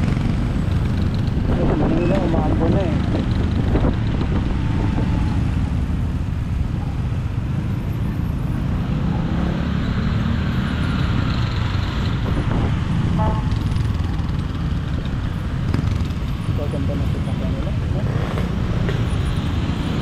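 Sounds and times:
motorcycle engines: 0.0s - 20.0s
wind noise on microphone: 2.9s - 5.5s, 12.1s - 13.1s.

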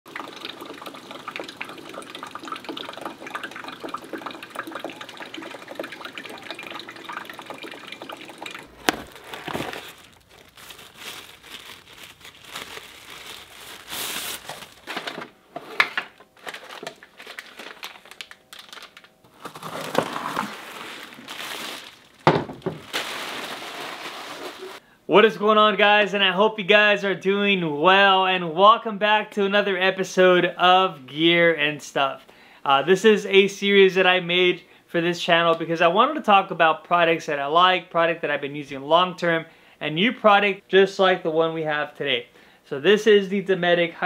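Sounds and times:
water running from faucet: 0.1s - 8.7s
rustling of paper and cardboard: 8.8s - 24.8s
handling knocks: 22.2s - 22.9s.

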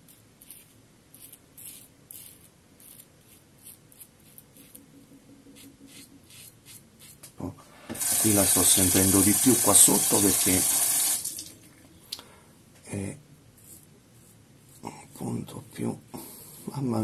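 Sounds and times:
razor scraping through beard: 0.1s - 4.8s, 5.6s - 7.3s.

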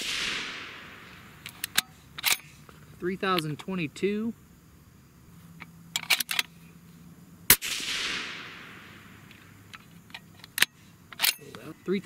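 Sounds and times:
suppressed rifle shot with echo: 0.0s - 2.6s, 7.5s - 9.7s.

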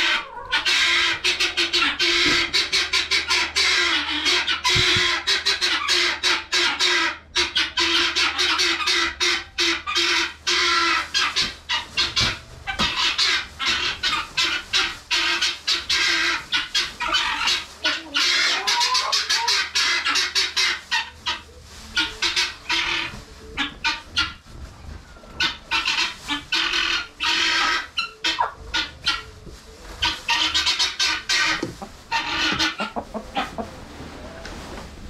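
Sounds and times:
guinea fowl squawking: 0.0s - 24.4s, 25.3s - 33.8s.

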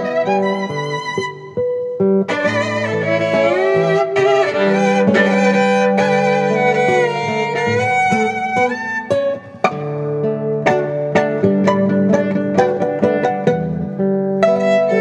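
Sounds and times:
violin melody: 0.0s - 15.0s
acoustic guitar chords: 1.2s - 15.0s.

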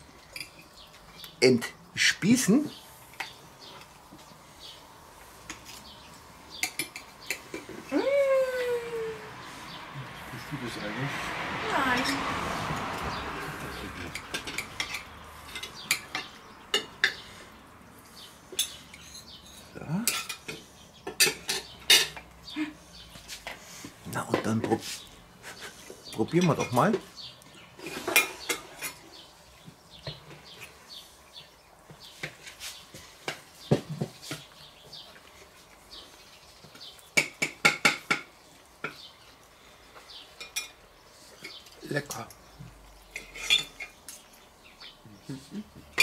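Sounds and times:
cutlery clinking on plates: 6.6s - 7.8s, 13.7s - 17.3s, 18.5s - 22.3s, 26.4s - 27.1s, 27.8s - 29.0s, 37.1s - 39.1s, 40.4s - 40.8s, 43.1s - 44.3s
bird chirping: 13.0s - 23.2s, 38.9s - 46.0s.

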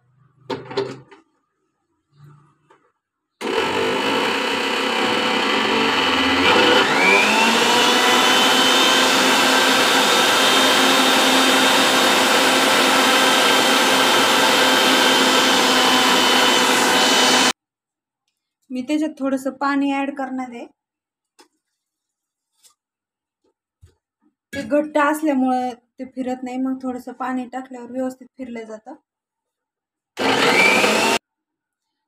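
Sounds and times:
mixer grinder motor whining: 3.4s - 17.6s, 30.2s - 31.2s.

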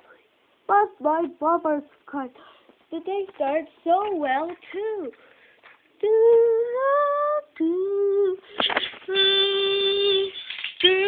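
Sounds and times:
person singing long held notes: 6.0s - 8.4s, 9.0s - 11.0s.

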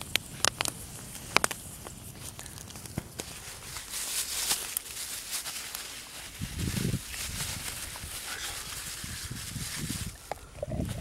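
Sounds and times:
wood fire popping: 0.0s - 11.0s
plastic bag crinkling: 2.2s - 10.7s.

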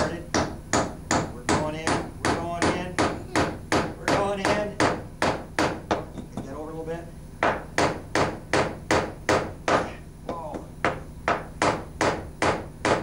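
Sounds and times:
hammer driving nail into wood: 7.4s - 13.0s.

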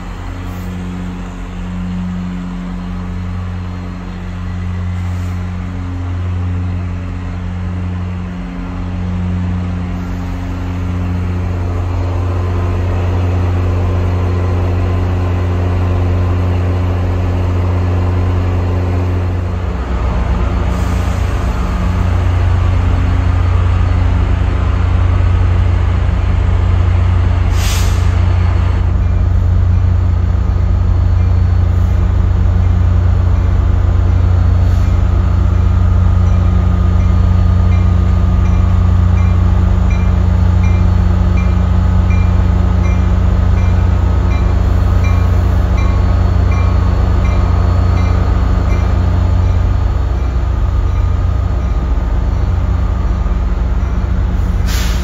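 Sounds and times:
diesel locomotive engine running: 0.0s - 55.0s
brief hiss: 27.5s - 28.2s, 54.5s - 55.0s.

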